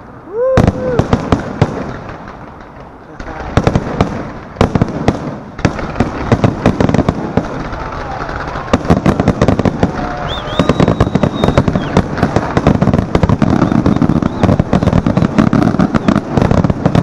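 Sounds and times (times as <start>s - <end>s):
fireworks bangs and crackles: 0.0s - 17.0s
firework high whistle: 9.4s - 12.2s, 13.2s - 16.2s.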